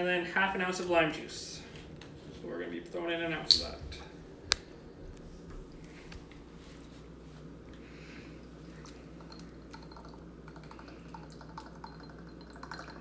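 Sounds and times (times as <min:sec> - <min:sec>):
low room hum: 0:00.0 - 0:13.0
liquid trickling: 0:08.4 - 0:13.0.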